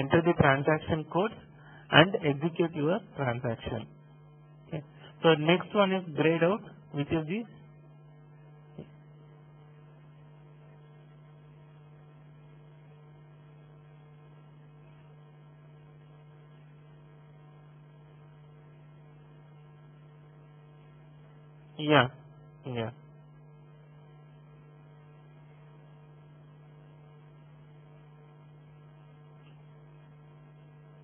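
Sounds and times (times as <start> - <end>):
electrical mains hum: 0.0 - 31.0.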